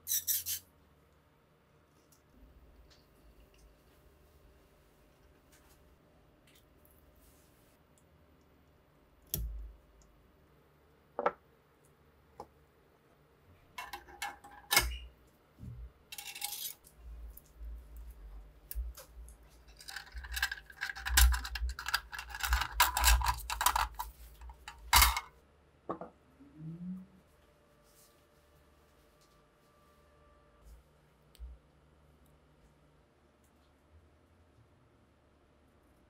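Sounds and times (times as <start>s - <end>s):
steel parts scraping and clinking: 16.1s - 16.9s, 19.6s - 25.3s.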